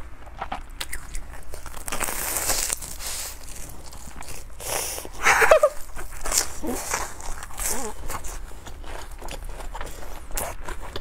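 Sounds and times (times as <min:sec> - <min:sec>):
crunchy biting and chewing: 0:00.0 - 0:11.0.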